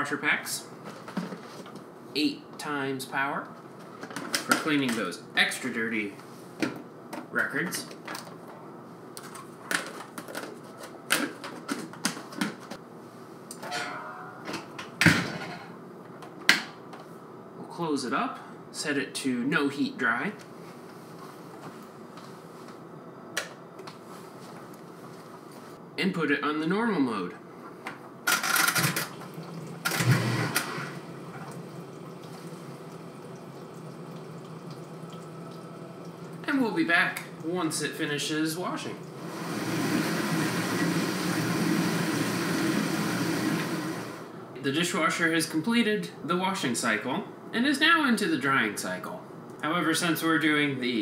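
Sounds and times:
dishwasher hum: 13.5 - 16.8, 28.3 - 44.4
water running: 29.1 - 38.0, 38.7 - 44.2.

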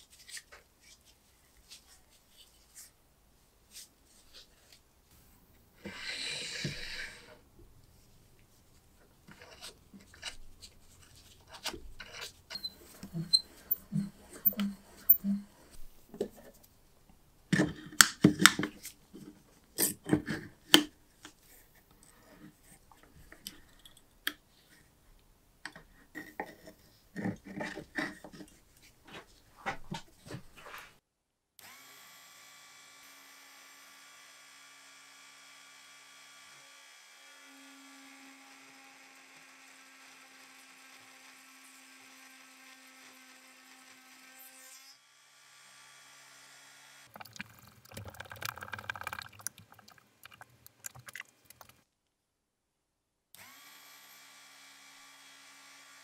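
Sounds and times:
rotary tool drilling whine: 31.6 - 47.1, 53.4 - 56.0.

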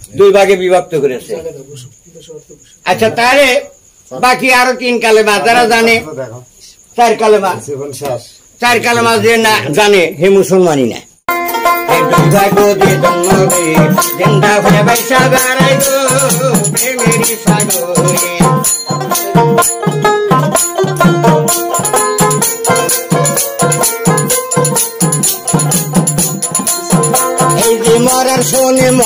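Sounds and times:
steady percussion beat: 11.3 - 29.0
plucked lute: 17.1 - 28.1.

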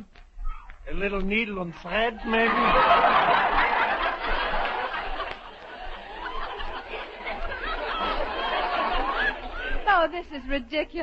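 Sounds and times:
studio audience laughing: 1.9 - 10.5.

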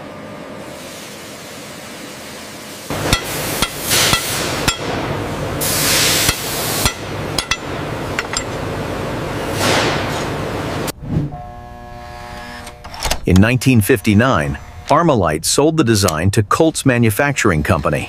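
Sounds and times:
workshop machine hum: 0.0 - 18.0
hiss bursts: 2.7 - 4.6, 5.6 - 6.9
hammer striking metal: 2.9 - 5.2, 6.1 - 8.6.

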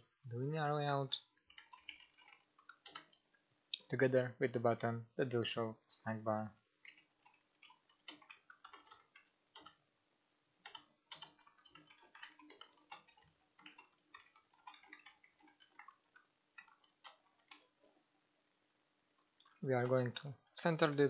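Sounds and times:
computer keyboard typing: 1.2 - 3.2, 6.8 - 9.8, 10.6 - 17.8.

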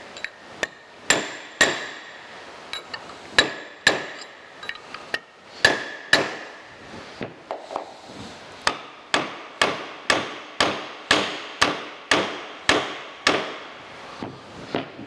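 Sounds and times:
hammer striking steel mandrel: 0.2 - 2.2, 2.8 - 6.6.

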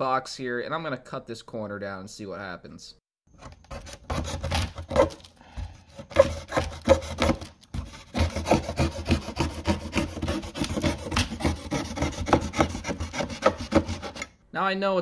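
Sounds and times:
knife sawing cardboard: 3.4 - 14.3.

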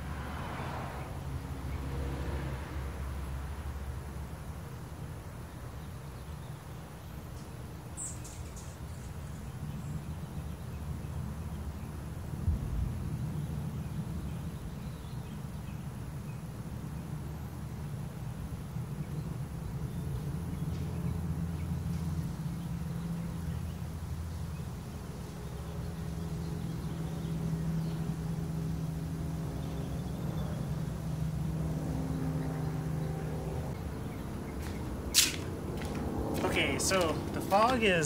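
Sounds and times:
sharp click: 35.1 - 35.5.

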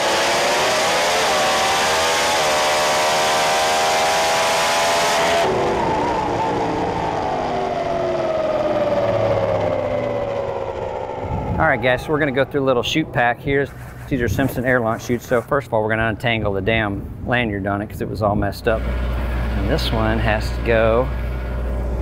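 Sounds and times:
race car at full throttle: 0.0 - 14.0, 18.7 - 22.0
whine falling in pitch: 4.4 - 13.6.

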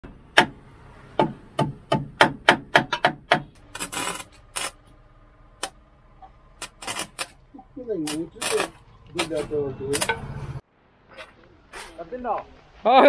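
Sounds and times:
sharp knocks: 0.0 - 3.6.

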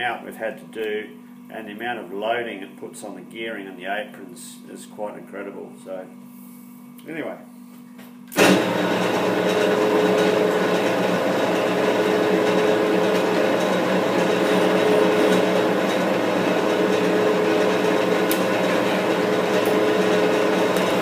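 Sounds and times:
metal lathe running with whine: 8.3 - 21.0.

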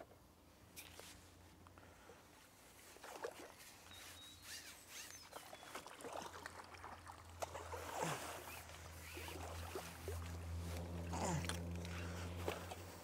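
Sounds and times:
water splashing and dripping: 5.4 - 10.5.

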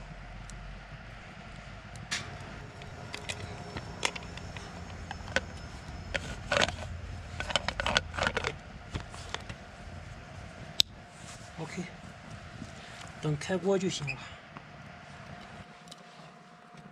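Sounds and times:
metal lid clinking and scraping: 2.1 - 9.6.

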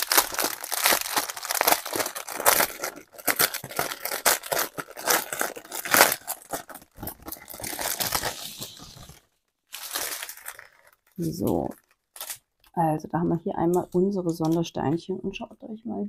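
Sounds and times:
plastic packaging crinkling: 0.0 - 12.7.

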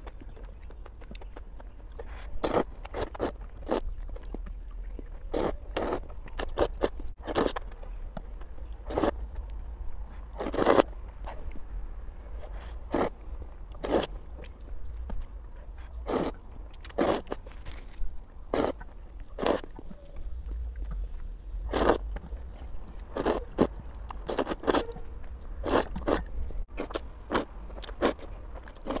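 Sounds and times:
wet chewing: 0.0 - 29.0
slurping noodles: 8.9 - 9.1, 10.4 - 10.8, 12.6 - 13.1, 16.0 - 17.4, 18.5 - 18.8, 21.7 - 22.0, 23.1 - 23.7, 25.6 - 26.2.

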